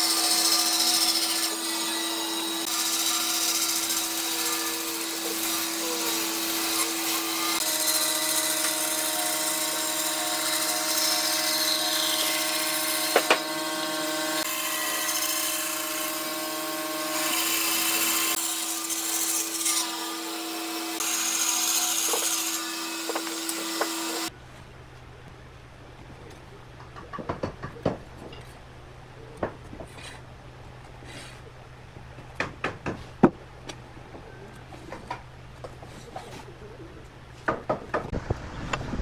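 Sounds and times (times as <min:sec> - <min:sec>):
bandsaw cutting wood: 0:00.0 - 0:24.3.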